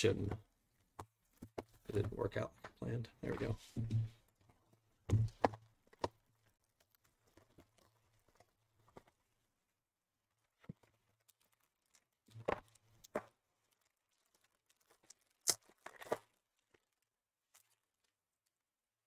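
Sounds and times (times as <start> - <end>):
plastic wrapper tearing and crinkling: 10.9 - 18.6.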